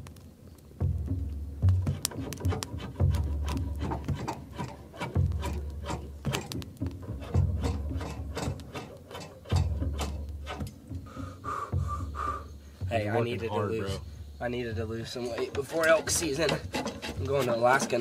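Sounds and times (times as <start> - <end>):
deep bass notes: 0.7 - 4.2, 5.2 - 8.7, 9.5 - 15.3.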